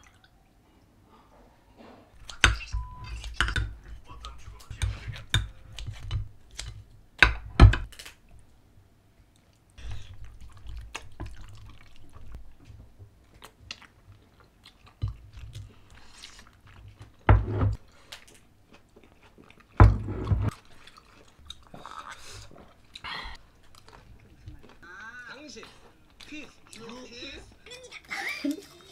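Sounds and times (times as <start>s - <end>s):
soft chewing: 2.1s - 7.0s, 8.2s - 19.8s, 20.5s - 28.9s
bowls and utensils knocking on table: 4.7s - 7.9s.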